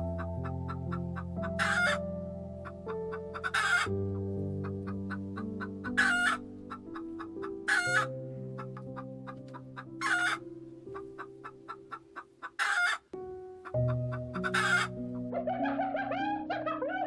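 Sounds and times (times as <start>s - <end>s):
background music with low notes: 0.0s - 17.0s
chicken calling loudly: 1.6s - 2.0s, 3.3s - 3.9s, 4.8s - 7.0s, 7.7s - 8.7s, 9.8s - 10.4s, 11.2s - 13.1s, 14.3s - 17.0s.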